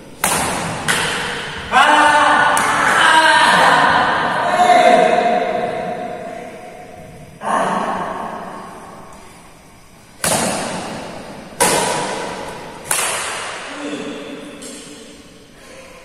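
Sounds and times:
rackets hitting shuttlecock: 0.2 - 1.7, 2.4 - 3.1, 10.2 - 13.7.

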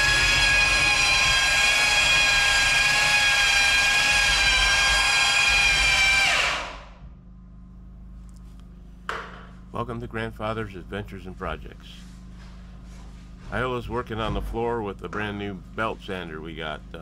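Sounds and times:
belt sander motor whining: 0.0 - 7.0.

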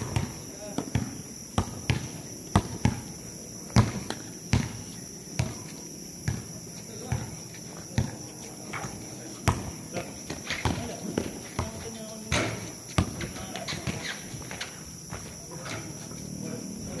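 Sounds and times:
basketball bouncing on court: 0.0 - 7.4, 8.0 - 8.2, 8.8 - 14.6.

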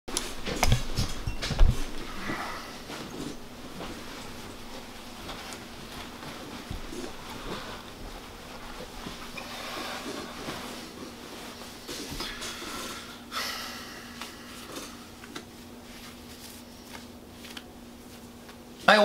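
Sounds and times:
steady low hum: 0.1 - 19.0
rustling near microphone: 0.2 - 13.0, 14.4 - 18.9
soft breathing: 2.0 - 3.4.

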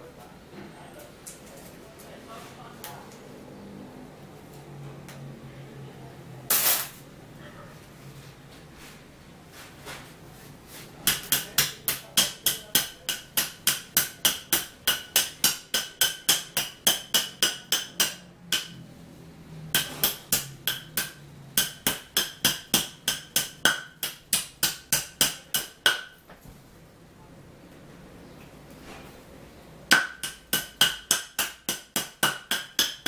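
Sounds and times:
hammer striking wood: 11.0 - 18.8, 19.7 - 26.2, 29.9 - 33.0.

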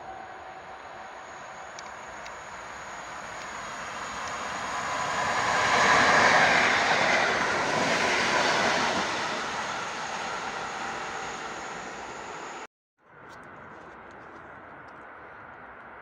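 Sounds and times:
train passing through station: 0.0 - 16.0.

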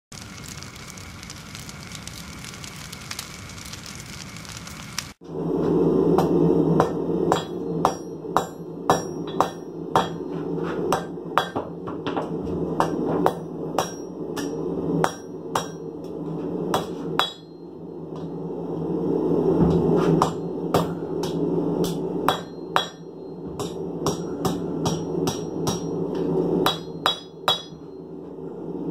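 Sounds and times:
low hum: 0.1 - 28.9
hammer striking metal on anvil: 6.2 - 12.2, 12.8 - 15.9, 16.7 - 18.3, 20.2 - 26.0, 26.6 - 28.0.

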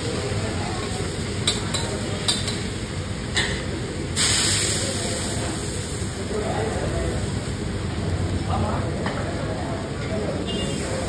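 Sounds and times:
water hissing into steam: 4.1 - 7.4.

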